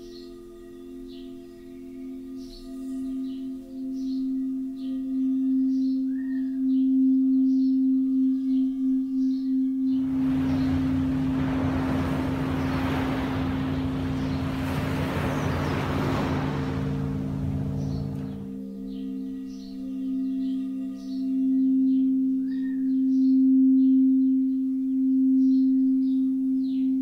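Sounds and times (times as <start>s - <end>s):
low steady tones: 0.0s - 27.0s
singing bowl ringing tone: 0.0s - 27.0s
rushing wash of noise: 10.0s - 19.0s.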